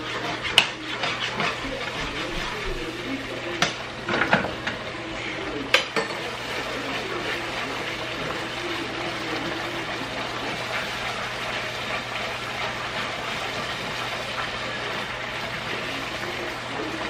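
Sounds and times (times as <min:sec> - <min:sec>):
spatula scraping a pan: 0:00.0 - 0:17.0.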